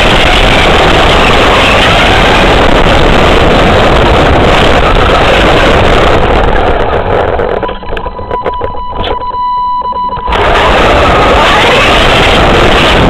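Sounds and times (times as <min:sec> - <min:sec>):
radio-controlled car driving: 0:00.0 - 0:09.3, 0:10.1 - 0:13.0
steady high beep: 0:07.6 - 0:11.8.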